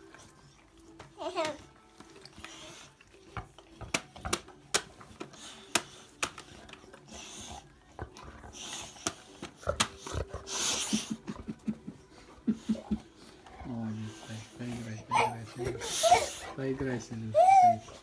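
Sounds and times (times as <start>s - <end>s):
dog sniffing: 4.5s - 11.6s, 12.4s - 18.0s.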